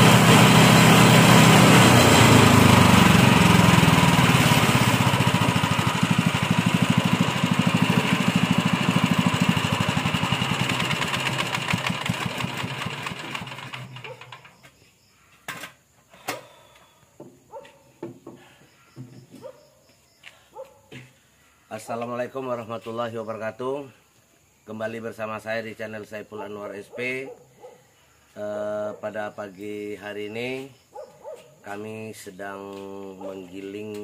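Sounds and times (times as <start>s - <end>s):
small petrol engine winding down: 0.0s - 14.6s.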